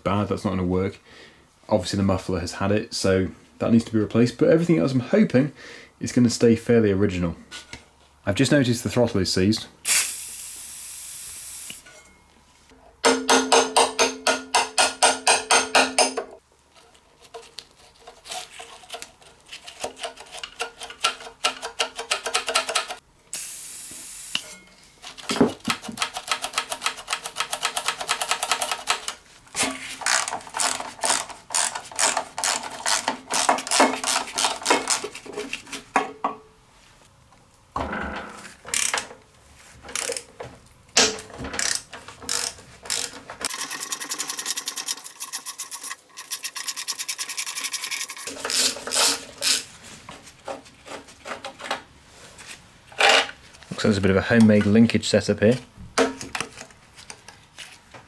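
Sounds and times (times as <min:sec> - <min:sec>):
aerosol spray hiss: 0:09.9 - 0:11.8.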